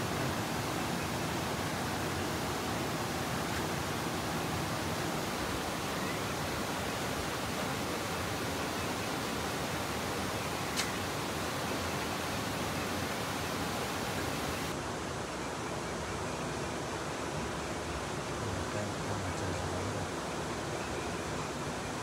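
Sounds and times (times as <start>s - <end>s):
steady rushing noise: 0.0s - 14.8s
sharp click: 10.7s - 11.0s.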